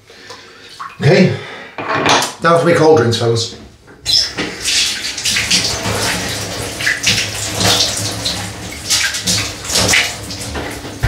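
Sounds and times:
running tap water: 0:04.0 - 0:11.0
water splashing on face: 0:04.1 - 0:11.0.

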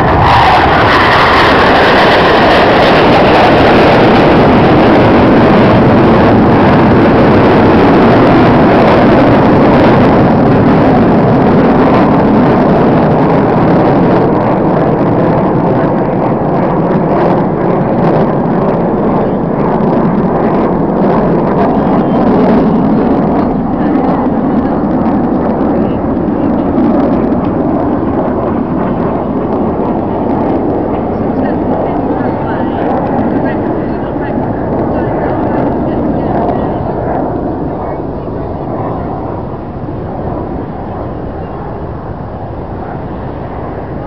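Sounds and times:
jet flying past: 0:00.0 - 0:44.0.

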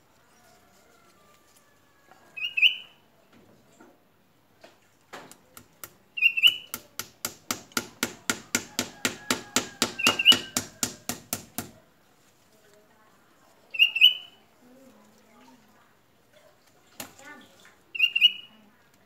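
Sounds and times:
bird chirping: 0:02.4 - 0:03.0, 0:06.2 - 0:06.7, 0:17.9 - 0:18.6
hammer tapping on tree trunk: 0:05.6 - 0:11.8.

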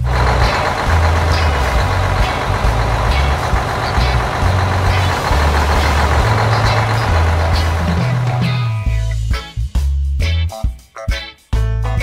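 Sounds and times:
truck engine driving: 0:00.0 - 0:09.2.

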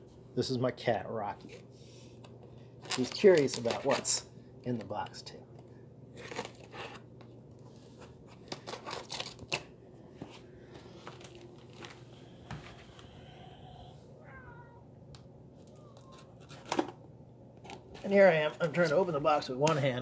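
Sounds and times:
cat meowing: 0:14.2 - 0:15.0.

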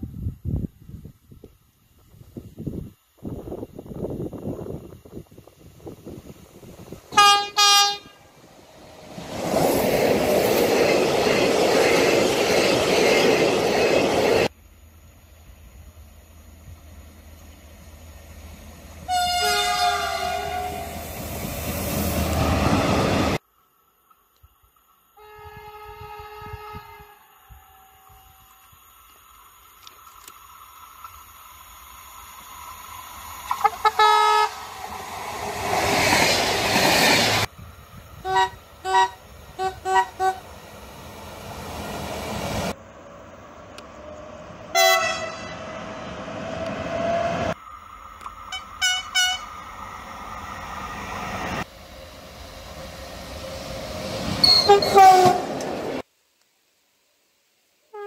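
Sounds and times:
passing train rumble and clatter: 0:03.6 - 0:23.4, 0:26.0 - 0:56.1
train horn blasts: 0:07.1 - 0:08.4, 0:19.0 - 0:21.0, 0:25.2 - 0:28.5, 0:33.5 - 0:34.6, 0:38.3 - 0:40.4, 0:44.7 - 0:45.6, 0:48.5 - 0:49.5, 0:54.4 - 0:55.6.

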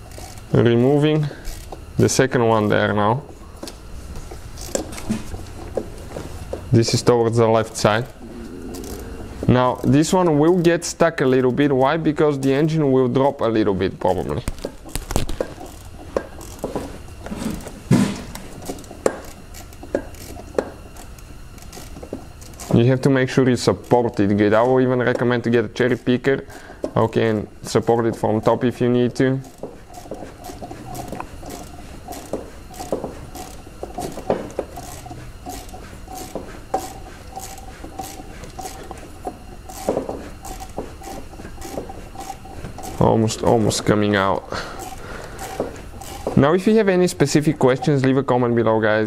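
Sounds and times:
ratchet metallic clicks and knocks: 0:00.0 - 0:00.6, 0:01.4 - 0:01.8, 0:14.1 - 0:17.4, 0:18.2 - 0:48.1.

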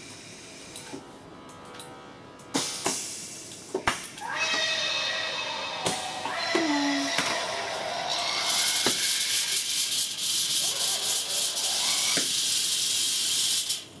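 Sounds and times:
compressed air hissing: 0:08.5 - 0:14.0.

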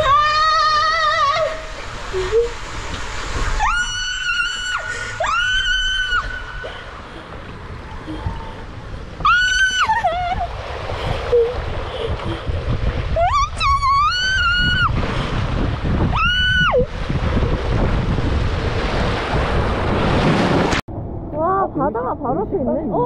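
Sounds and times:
water rushing and splashing: 0:00.0 - 0:20.9
woman screaming: 0:03.6 - 0:06.6, 0:09.3 - 0:10.5, 0:13.2 - 0:14.9, 0:16.1 - 0:16.9.

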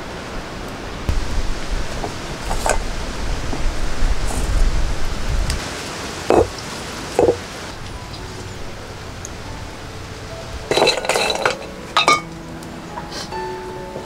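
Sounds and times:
seeds rattling in a clay pot: 0:10.7 - 0:11.7.

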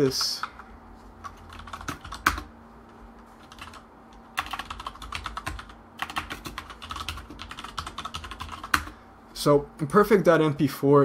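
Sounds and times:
typing on computer keyboard: 0:01.2 - 0:02.5, 0:03.4 - 0:08.9.

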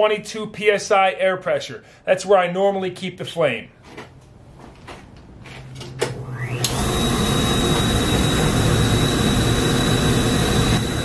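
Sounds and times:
furnace burner hum: 0:05.9 - 0:11.0
burner rushing with high whine: 0:06.6 - 0:11.0.

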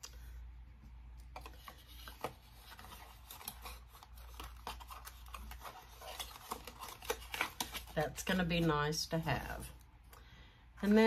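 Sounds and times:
packaging rustling and clicking: 0:01.4 - 0:08.0.

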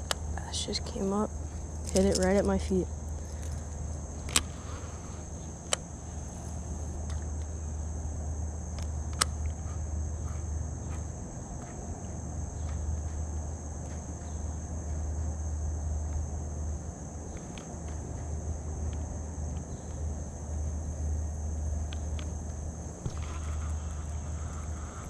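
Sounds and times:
insects droning: 0:00.0 - 0:25.0.

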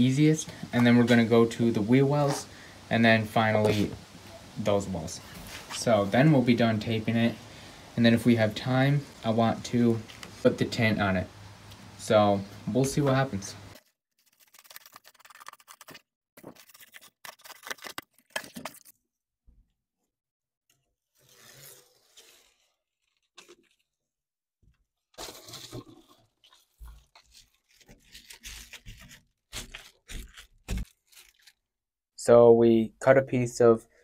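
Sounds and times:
bubble-foil crinkling and scraping: 0:13.7 - 0:19.0, 0:21.1 - 0:24.3, 0:25.1 - 0:31.7.

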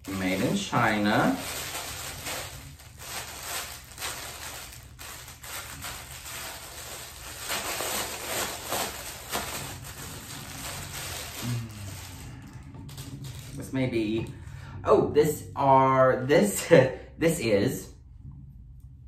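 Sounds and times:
plastic bag crinkling: 0:00.0 - 0:14.3.

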